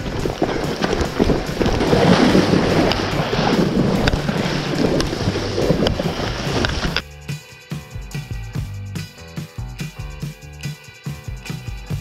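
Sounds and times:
heavy rain pouring: 0:00.0 - 0:07.0
wind buffeting microphone: 0:00.0 - 0:07.0
sharp ticks: 0:00.0 - 0:12.0.

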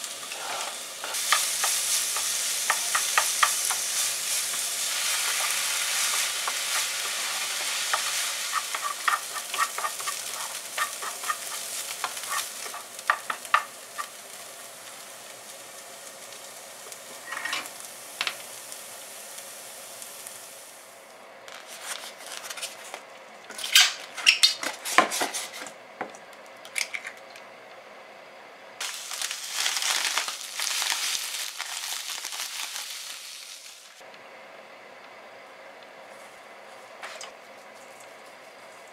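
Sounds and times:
onion sizzling in frying pan: 0:00.0 - 0:25.5, 0:28.8 - 0:34.0
wooden spatula scraping pan: 0:00.2 - 0:03.8, 0:05.1 - 0:13.7
breadcrumbs pouring into bowl: 0:28.8 - 0:33.6.

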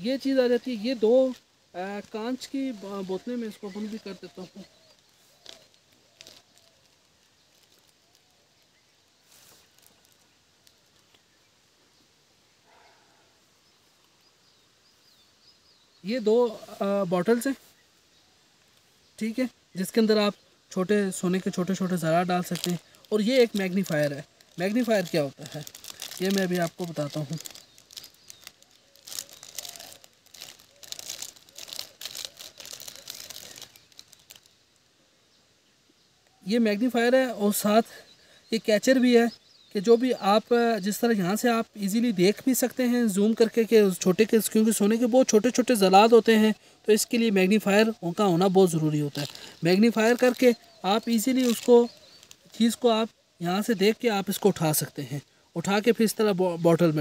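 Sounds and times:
plastic bag crinkling: 0:02.0 - 0:11.2, 0:21.2 - 0:34.6, 0:48.6 - 0:52.8.

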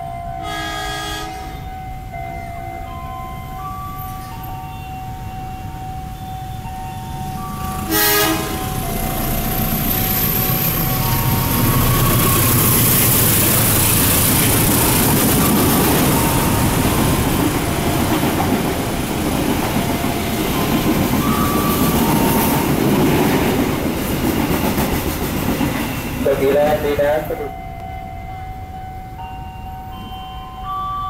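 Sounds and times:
diesel locomotive engine passing: 0:00.0 - 0:31.0
train wheels clattering on rails: 0:07.2 - 0:28.0.

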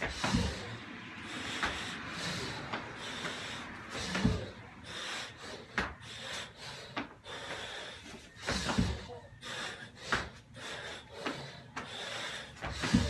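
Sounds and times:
man breathing hard: 0:00.0 - 0:13.0
thuds on rubber floor: 0:04.0 - 0:04.5, 0:08.5 - 0:09.1, 0:12.6 - 0:13.0.

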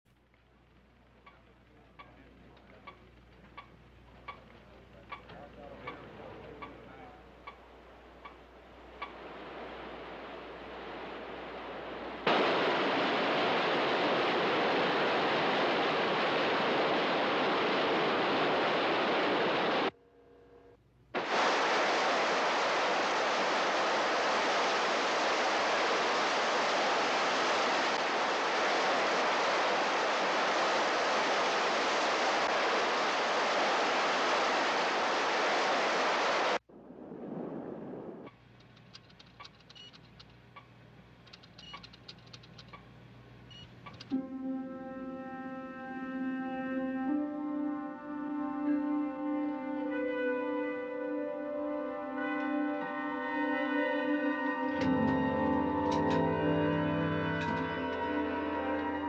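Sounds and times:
loud steady rushing hiss: 0:00.2 - 0:20.0, 0:21.1 - 0:36.7, 0:52.1 - 0:59.0.

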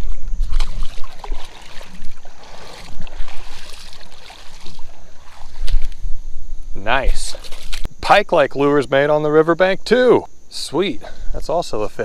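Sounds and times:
water splashing in a creek: 0:00.0 - 0:06.0, 0:07.2 - 0:07.9.

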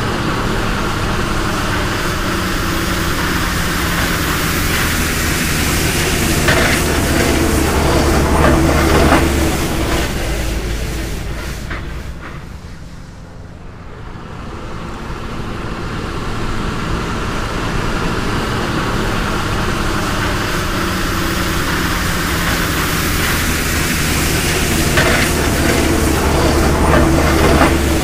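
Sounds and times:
vehicle engine drone: 0:00.0 - 0:28.0
broad hiss: 0:00.1 - 0:13.6, 0:17.0 - 0:28.0
rattling clatter: 0:19.5 - 0:28.0.

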